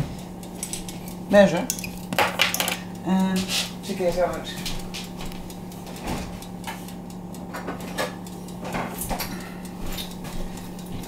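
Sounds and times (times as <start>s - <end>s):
steady low hum: 0.0s - 11.0s
kitchen things knocking and clinking: 1.7s - 2.8s.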